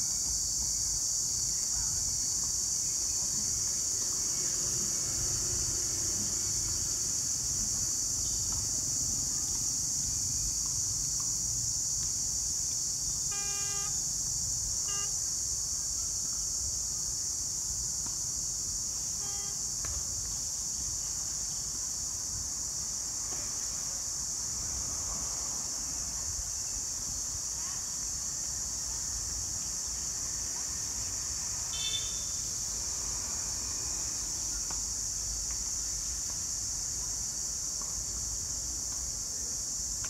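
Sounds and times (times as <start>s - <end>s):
high-pitched insect drone: 0.0s - 21.6s, 29.8s - 35.1s
vehicle horn toots: 13.3s - 14.1s, 14.8s - 15.2s, 19.2s - 19.6s, 31.7s - 32.4s.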